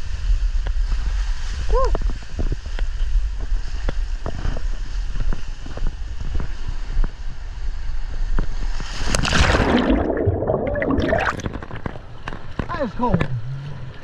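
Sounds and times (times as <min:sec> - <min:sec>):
microphone wind buffeting: 0:00.0 - 0:12.6
water rushing down slide: 0:08.8 - 0:12.3
loud splash into pool: 0:09.0 - 0:11.7.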